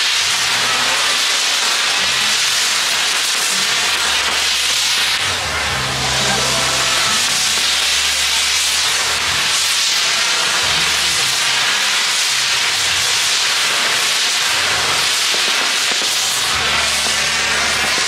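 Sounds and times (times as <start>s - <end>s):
fireworks hissing: 0.0s - 18.0s.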